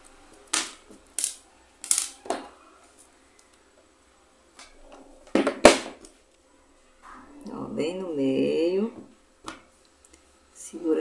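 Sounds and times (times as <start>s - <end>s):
small pieces rustling and clattering: 0.4s - 3.1s.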